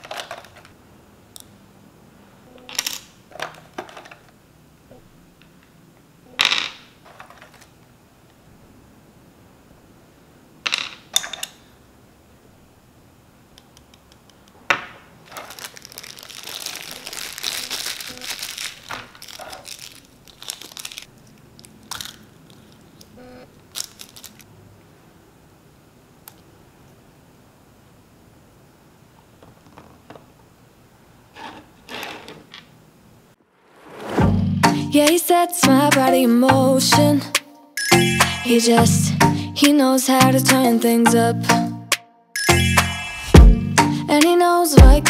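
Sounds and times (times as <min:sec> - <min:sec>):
plastic parts clicking: 0:00.0 - 0:00.8, 0:02.6 - 0:04.4, 0:10.6 - 0:11.6, 0:13.6 - 0:14.7, 0:15.3 - 0:24.5
plastic packaging crinkling: 0:15.2 - 0:24.5.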